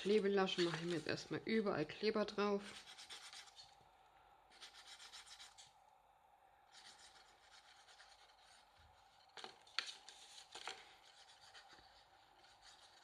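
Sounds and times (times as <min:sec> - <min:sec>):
glue spreading on cardstock: 0:02.6 - 0:03.8, 0:06.7 - 0:13.0.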